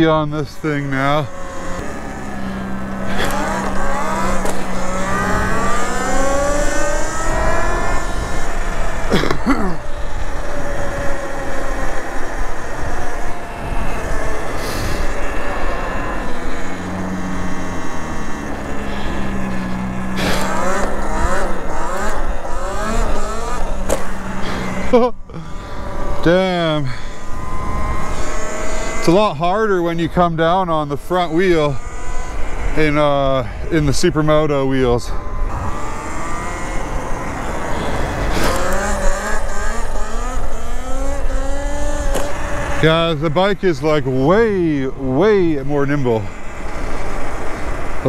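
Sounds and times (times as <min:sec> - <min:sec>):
electric motor whine: 0:00.0 - 0:30.1, 0:31.1 - 0:43.5, 0:44.1 - 0:48.0
wind: 0:00.0 - 0:48.0
wind rush: 0:01.6 - 0:24.9.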